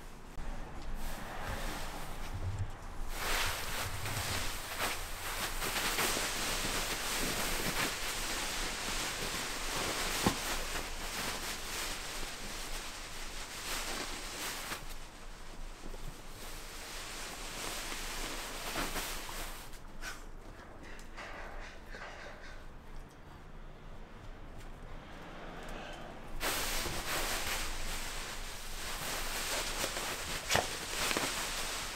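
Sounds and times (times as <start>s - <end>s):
dogs scuffling and rustling: 0.8s - 20.7s, 26.4s - 31.9s.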